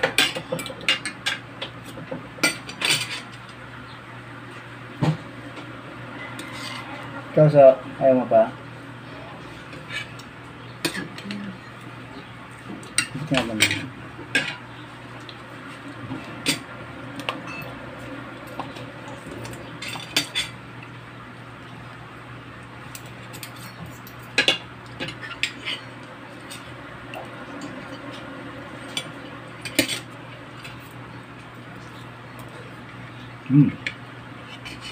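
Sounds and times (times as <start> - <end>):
low steady hum: 0.0 - 34.9
cutlery clinking on a plate: 2.4 - 3.4.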